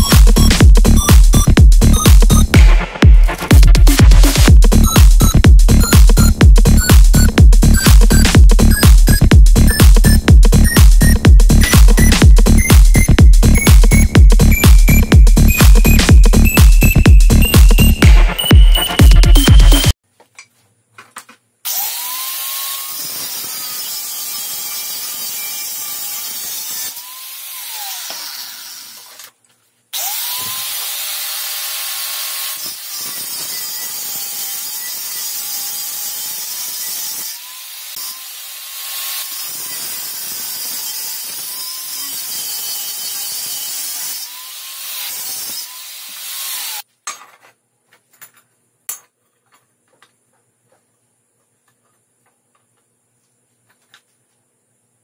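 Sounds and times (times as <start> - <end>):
angle grinder cutting steel: 21.7 - 29.2, 30.0 - 46.8.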